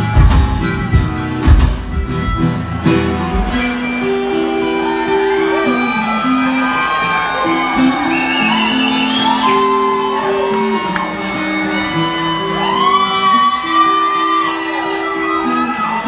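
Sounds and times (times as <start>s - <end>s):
strummed acoustic guitar: 0.0s - 6.6s
harmonica long notes: 0.0s - 16.0s.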